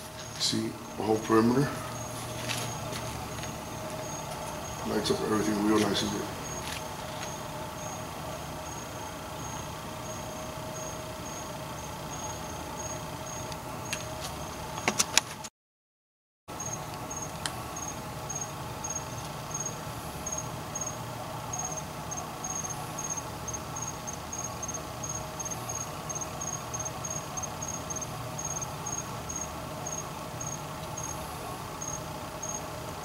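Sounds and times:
cricket chirping: 0.0 - 14.9, 16.6 - 32.8
low steady hum: 0.0 - 15.2.

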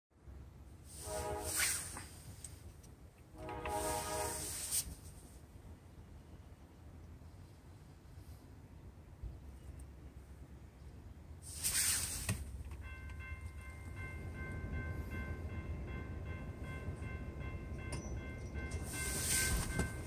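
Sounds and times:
low rumble of train: 0.1 - 20.0
brief rush of noise: 0.9 - 2.4
crossing warning bell ringing: 3.3 - 4.7, 12.5 - 20.0.

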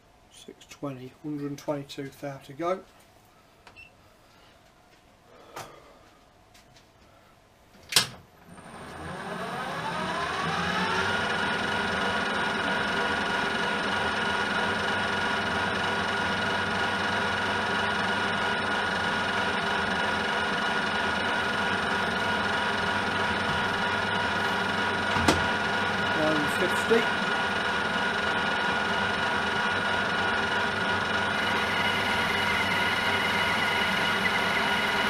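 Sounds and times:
lathe motor with gear whine: 8.5 - 35.0.

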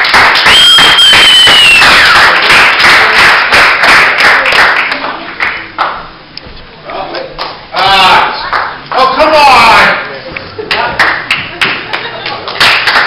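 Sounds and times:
spectators applauding: 0.0 - 6.1, 7.4 - 10.0, 10.6 - 13.0
sharp whistle: 0.4 - 2.1.

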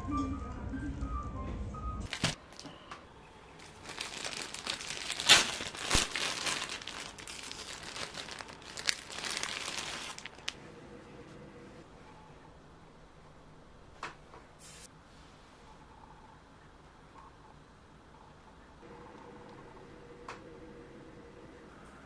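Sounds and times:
plastic bag crinkling: 2.1 - 2.6, 3.6 - 10.6.

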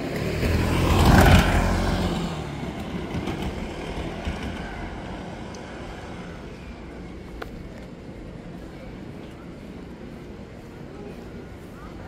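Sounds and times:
motor vehicle passing: 0.0 - 7.2.

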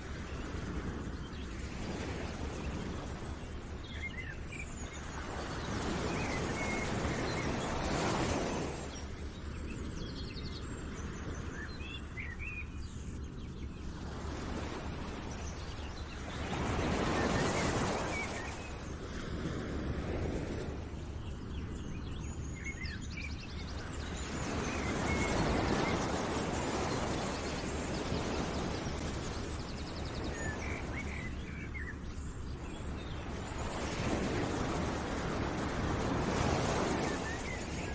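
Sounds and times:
rushing outdoor ambience: 0.0 - 37.9
small birds chirping: 20.8 - 37.9.

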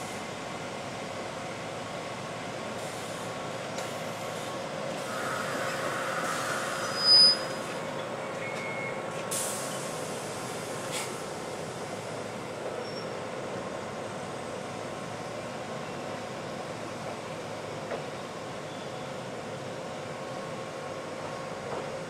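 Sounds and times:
high-pitched squeal: 5.0 - 7.8
short hiss: 9.3 - 11.2.

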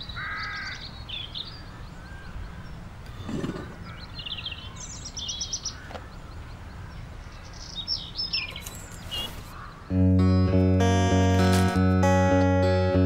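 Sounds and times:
birds chirping: 0.0 - 13.0
acoustic guitar music: 9.9 - 13.0.

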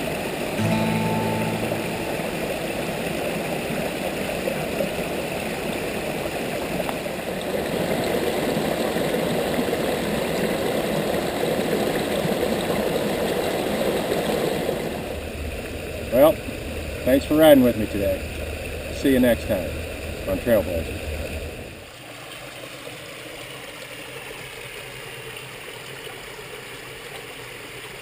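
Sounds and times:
creek water rushing over rocks: 1.0 - 15.1.

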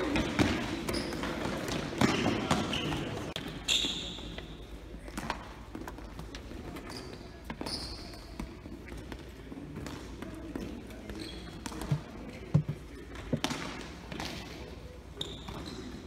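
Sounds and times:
basketballs bouncing on gym floor: 0.0 - 4.4.

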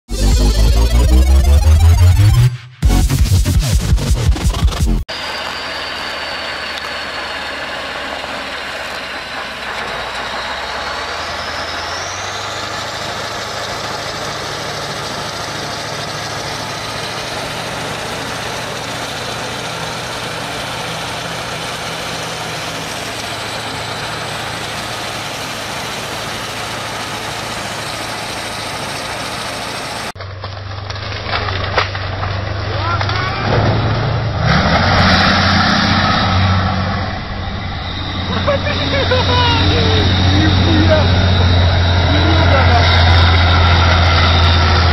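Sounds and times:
faint high whine rising: 5.1 - 12.6, 35.9 - 44.9
diesel engine under load: 5.1 - 44.9
dense rushing noise: 30.8 - 44.9.

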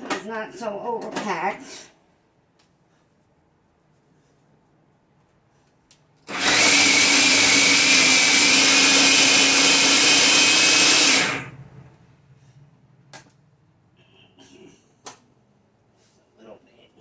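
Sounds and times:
food processor motor whining: 6.3 - 11.6.

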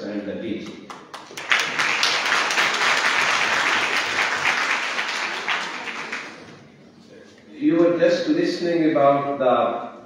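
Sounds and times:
audience applauding: 0.9 - 6.6.

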